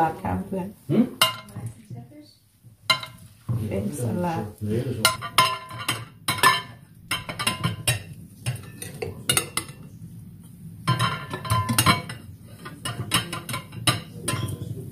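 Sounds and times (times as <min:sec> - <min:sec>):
cutlery and dishes clinking: 0:01.2 - 0:01.6, 0:02.9 - 0:03.3, 0:05.0 - 0:09.9, 0:10.9 - 0:14.9.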